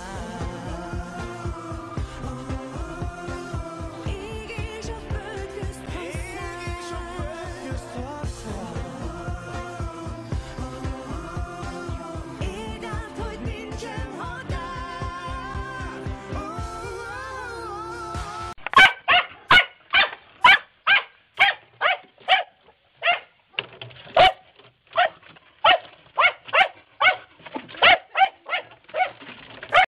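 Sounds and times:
pop music with singing: 0.0s - 18.7s
dog barking: 18.7s - 23.3s, 24.2s - 29.9s.

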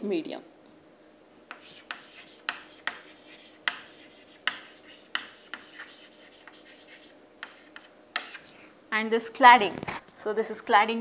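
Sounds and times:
chalk scratching strokes: 1.5s - 8.4s
chalk tapping on chalkboard: 1.5s - 8.4s.

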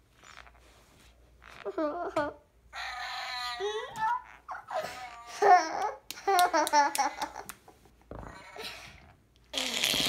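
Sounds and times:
girl babbling and giggling: 1.7s - 7.5s.

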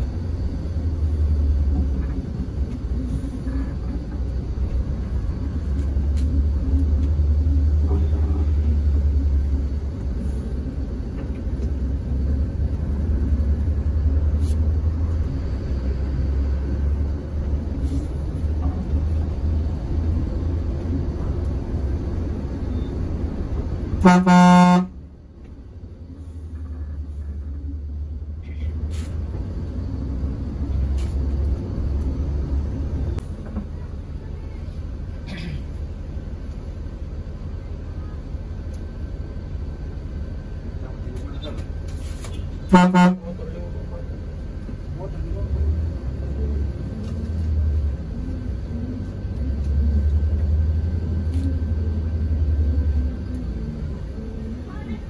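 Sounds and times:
bus engine rumble: 0.0s - 55.0s
bus horn blast: 24.0s - 25.0s, 42.6s - 43.6s.

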